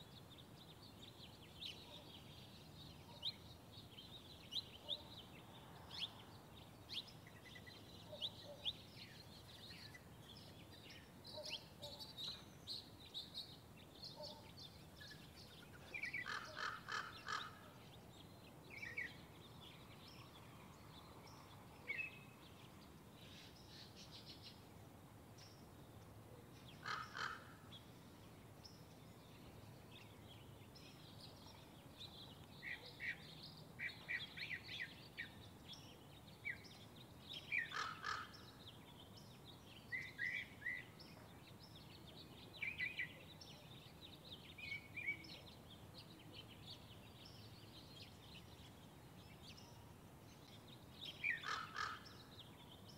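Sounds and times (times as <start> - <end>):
birds chirping: 0.0 - 24.7, 25.4 - 52.9
harsh bird calls: 15.8 - 17.8, 26.8 - 27.7, 37.5 - 38.6, 51.1 - 52.3.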